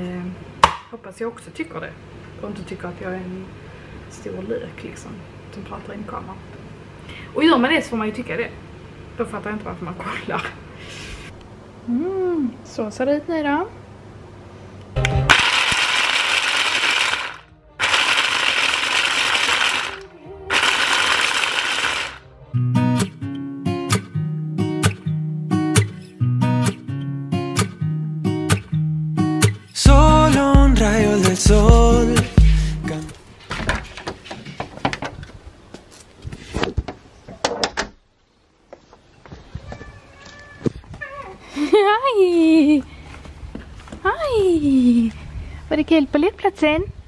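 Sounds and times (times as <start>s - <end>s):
food processor running: 15.3s - 22.2s.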